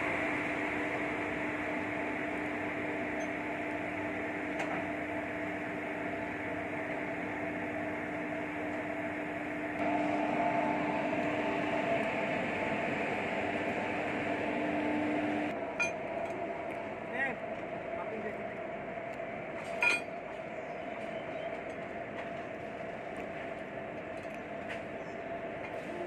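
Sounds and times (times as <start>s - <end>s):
diesel locomotive idling: 0.0s - 26.0s.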